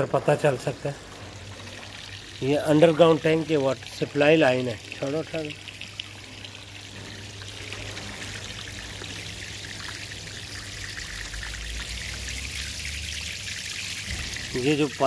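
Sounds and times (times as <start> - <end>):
water gushing and splashing on paving: 0.0 - 15.0.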